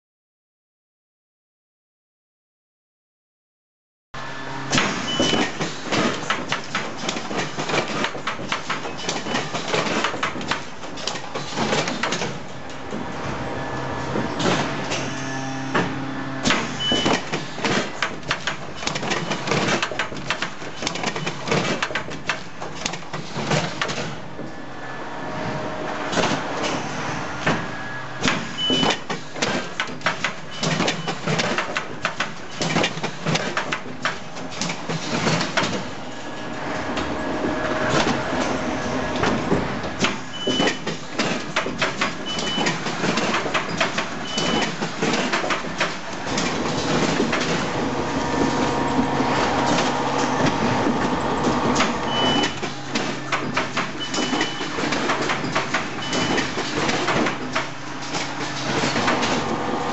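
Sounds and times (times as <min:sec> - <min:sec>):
machine hum: 0:04.2 - 0:05.3, 0:12.4 - 0:17.6, 0:24.3 - 0:28.7, 0:34.4 - 0:40.4, 0:45.8 - 0:53.3, 0:56.6 - 0:59.9
mechanism clattering clicks and knocks: 0:05.3 - 0:12.4, 0:16.4 - 0:24.2, 0:28.2 - 0:35.9, 0:39.2 - 0:47.7, 0:51.7 - 0:59.6
motor hum: 0:12.8 - 0:16.9, 0:46.1 - 0:53.0, 0:57.8 - 0:59.9.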